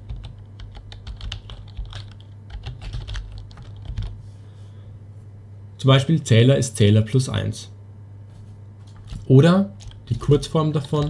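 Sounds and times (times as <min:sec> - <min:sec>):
keyboard typing: 0:00.0 - 0:04.2, 0:08.8 - 0:11.0.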